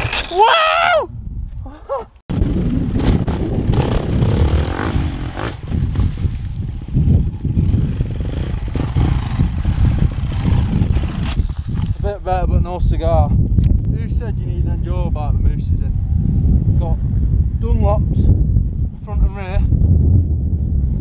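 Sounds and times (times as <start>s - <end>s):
motorbike engine revving: 2.4s - 6.2s, 6.9s - 11.5s.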